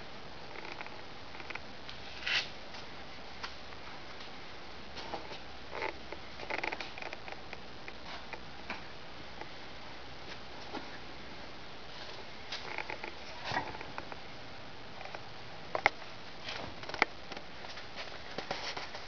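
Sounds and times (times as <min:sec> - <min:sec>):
room tone hiss: 0:00.0 - 0:19.0
rustling: 0:15.8 - 0:19.0.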